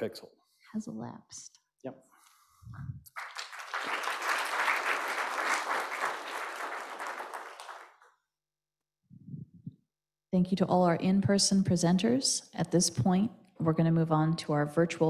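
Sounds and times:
audience applauding: 3.0s - 8.1s.

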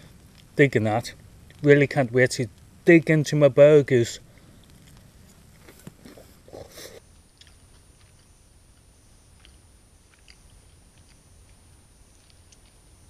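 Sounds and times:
person chewing: 4.6s - 8.3s, 9.4s - 12.8s.

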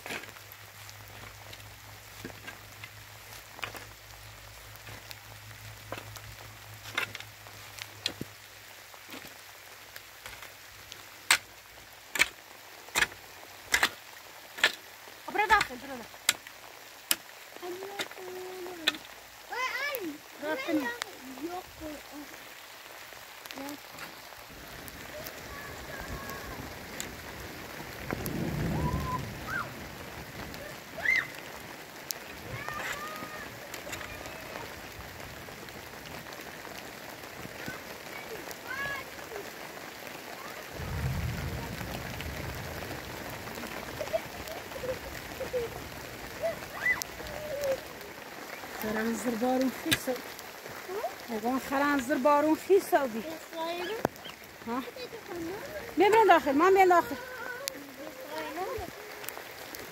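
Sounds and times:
rain hiss: 0.0s - 59.9s
digging tool striking stony soil: 12.2s - 14.0s
low rumble: 28.0s - 29.7s, 40.8s - 44.9s.

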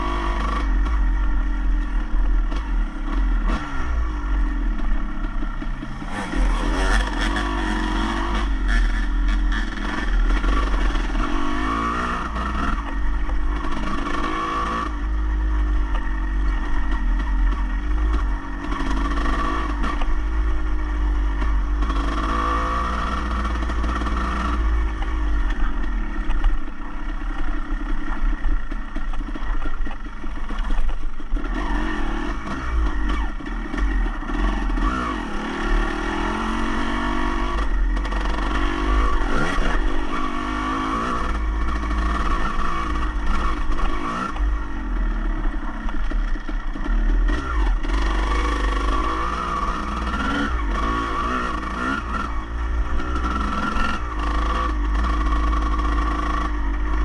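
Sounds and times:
engine revving hard: 6.0s - 12.9s, 31.5s - 44.4s.

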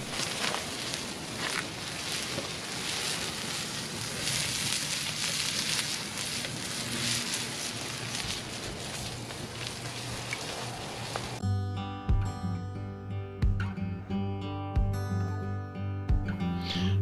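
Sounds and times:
fire crackling and hissing: 0.0s - 11.4s
wood popping: 0.0s - 11.4s.

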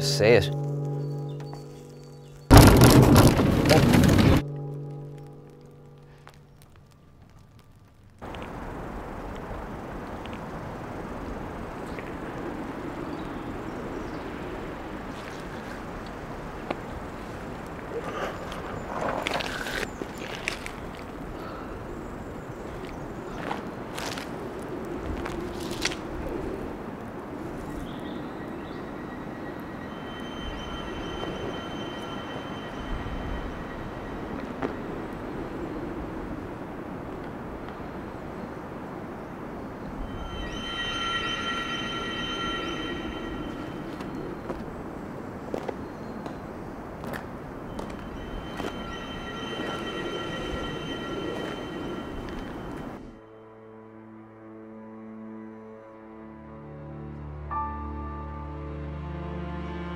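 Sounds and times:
low outdoor rush: 2.5s - 53.3s
high ringing tones: 27.9s - 36.2s, 39.9s - 45.2s, 47.6s - 53.2s
low rumble: 40.0s - 44.9s.

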